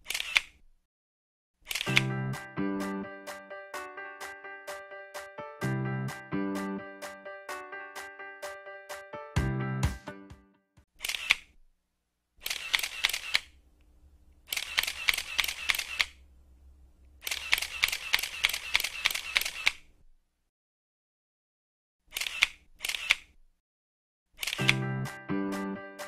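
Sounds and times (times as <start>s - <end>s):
camera shutter clicks: 0.0s - 0.6s, 1.6s - 2.1s, 11.0s - 11.5s, 12.4s - 13.6s, 14.5s - 16.2s, 17.2s - 19.9s, 22.1s - 23.3s, 24.4s - 24.8s.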